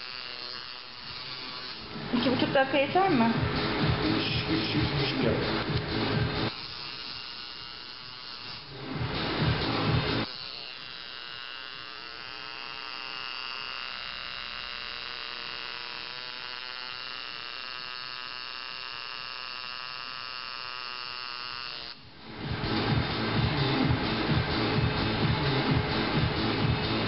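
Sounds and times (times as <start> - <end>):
tattoo machine buzzing: 0.0 - 27.0
loud rough noise: 1.8 - 6.5, 22.3 - 27.0.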